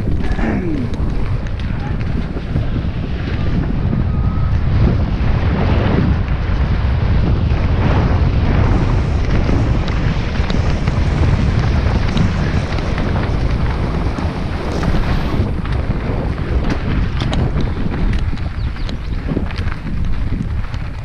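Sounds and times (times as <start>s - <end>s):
bike clicks and rattles: 0.0s - 3.8s, 8.9s - 21.0s
wind rushing over microphone: 0.0s - 21.0s.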